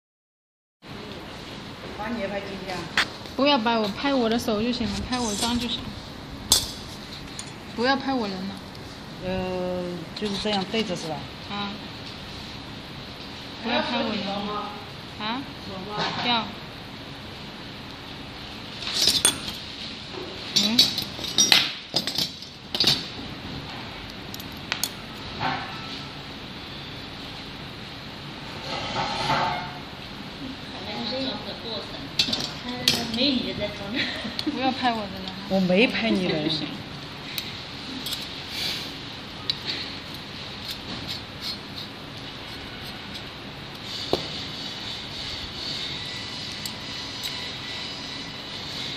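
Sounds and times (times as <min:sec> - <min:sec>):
small metal parts clinking: 0:20.6 - 0:23.1
screwdriver ticking and scraping: 0:39.5 - 0:48.9.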